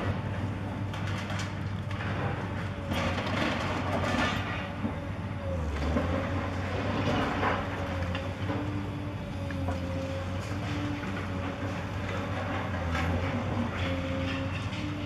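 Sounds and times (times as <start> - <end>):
concrete crunching and falling rubble: 0.0 - 4.9
excavator engine drone: 0.0 - 15.0.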